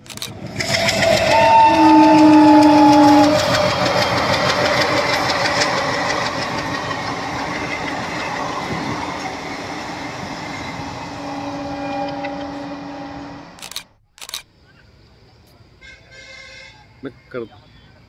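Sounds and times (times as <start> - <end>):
train wheels clattering: 0.0 - 11.1
faint train horn: 0.7 - 4.3, 10.8 - 13.7, 15.8 - 17.8.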